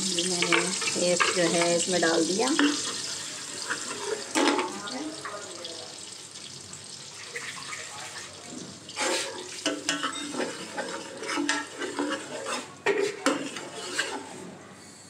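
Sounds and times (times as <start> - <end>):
gravy sizzling: 0.0 - 14.4
ladle scraping and clinking on pot: 0.4 - 1.9, 2.5 - 4.8, 9.0 - 14.4
water pouring from a jug: 7.1 - 9.6.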